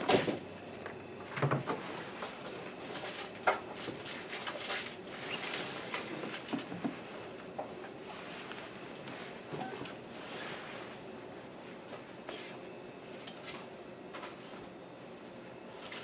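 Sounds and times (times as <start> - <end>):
fabric rustling: 5.1 - 12.6.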